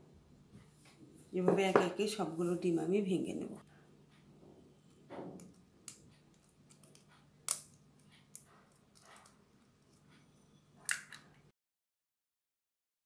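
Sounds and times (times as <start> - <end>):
eggshell cracking: 10.8 - 11.2.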